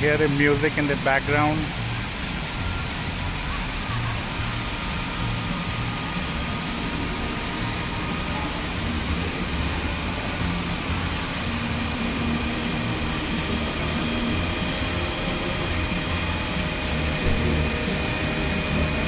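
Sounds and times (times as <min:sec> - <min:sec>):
fountain water splashing: 0:00.0 - 0:19.0
low rumble: 0:14.4 - 0:19.0.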